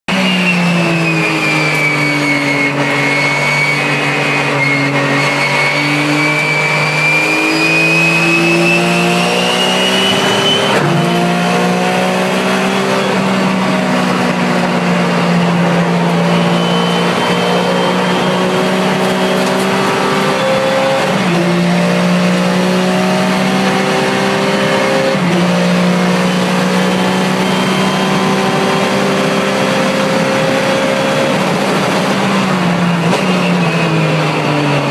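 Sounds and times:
high whine: 0.1s - 21.8s
race car engine revving: 0.1s - 34.9s.

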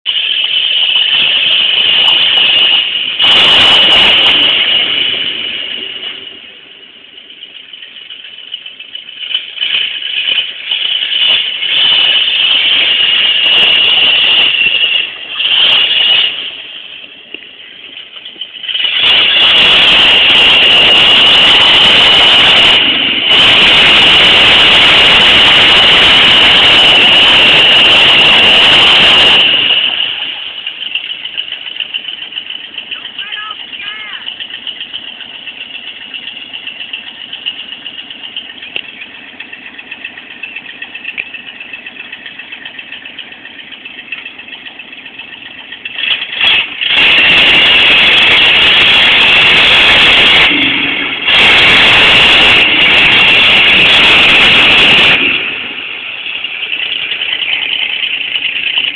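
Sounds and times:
truck engine working hard: 0.0s - 58.9s.

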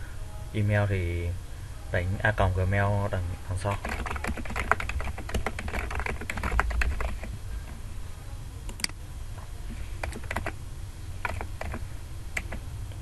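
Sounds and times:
low steady hum: 0.0s - 13.0s
typing on computer keyboard: 3.7s - 7.3s, 10.0s - 10.6s, 11.2s - 11.8s, 12.4s - 12.6s.

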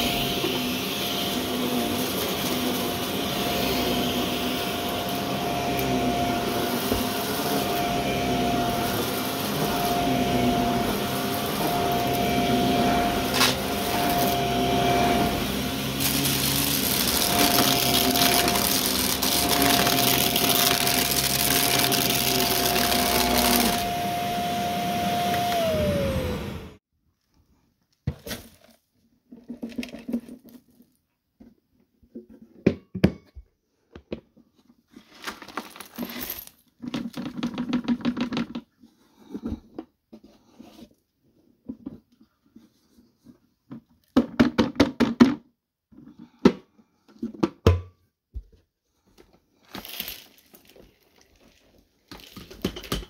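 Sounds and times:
upright vacuum whining: 0.0s - 26.8s.

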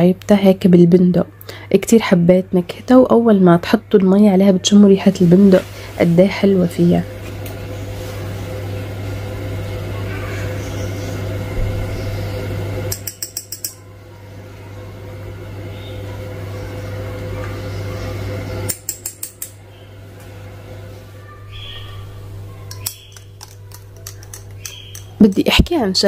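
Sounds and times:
metal spoon clinking against glass: 12.9s - 13.8s.

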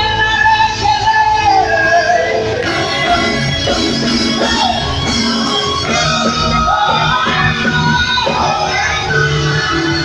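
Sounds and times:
amplified band with drums: 0.0s - 10.0s
women singing into microphones: 5.9s - 10.0s.

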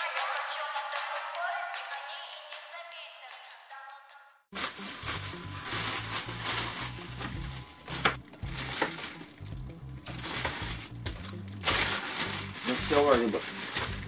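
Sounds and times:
foil wrapper crinkling: 4.5s - 14.0s.

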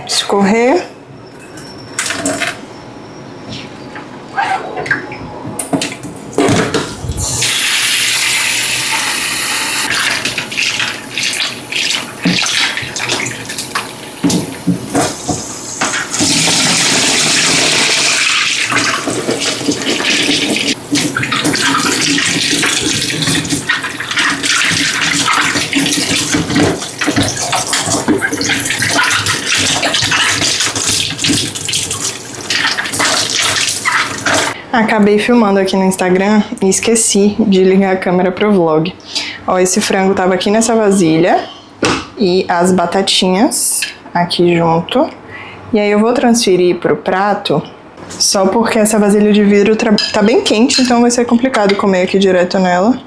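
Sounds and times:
tap water running into sink: 9.9s - 34.6s.

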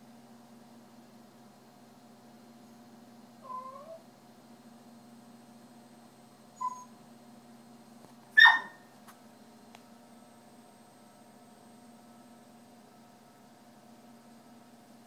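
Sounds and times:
dog whining: 3.4s - 4.0s, 6.6s - 7.0s, 8.4s - 8.8s
dog barking sharply: 8.4s - 8.8s.

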